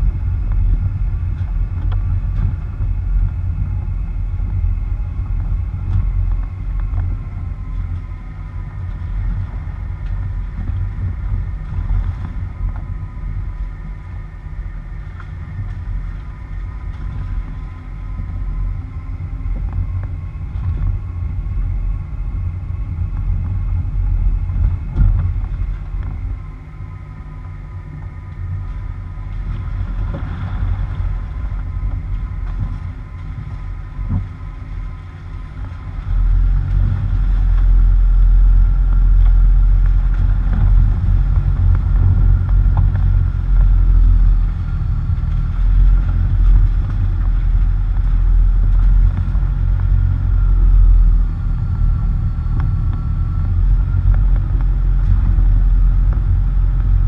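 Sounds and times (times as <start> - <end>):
faint high whine: 0.0 - 57.0
wind buffeting: 28.5 - 57.0.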